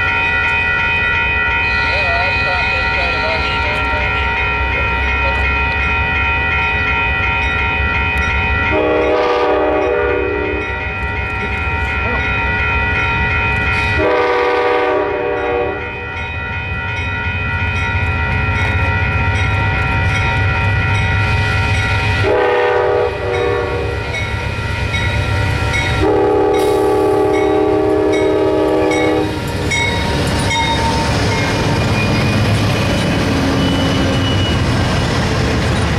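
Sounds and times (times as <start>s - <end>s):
train engine and wheels rumbling: 0.0s - 35.9s
locomotive air horn blasts: 8.7s - 10.7s, 14.0s - 16.0s, 22.2s - 24.2s, 26.0s - 29.4s.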